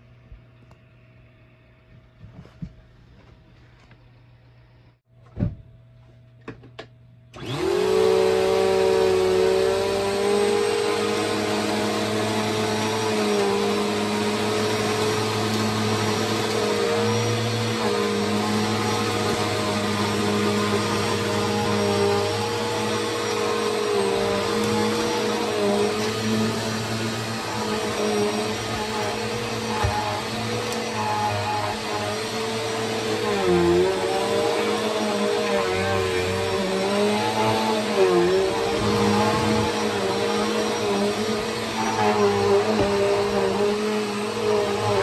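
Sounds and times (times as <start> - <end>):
thump: 5.4 - 5.6
vacuum cleaner motor: 7.3 - 45.0.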